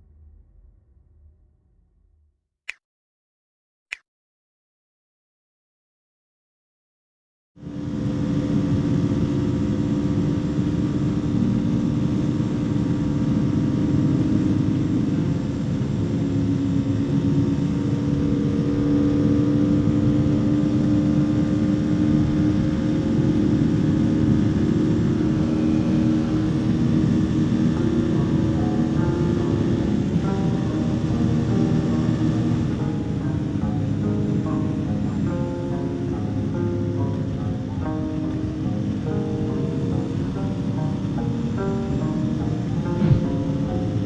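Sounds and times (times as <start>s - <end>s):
motorcycle engine cruising: 7.6s - 44.0s
road noise: 7.7s - 44.0s
wind noise: 43.0s - 44.0s.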